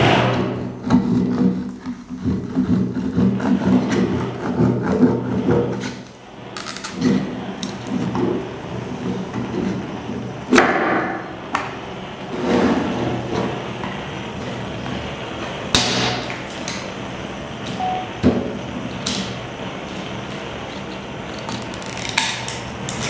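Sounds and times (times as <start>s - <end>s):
blade hacking and scraping disc: 0.0s - 6.0s.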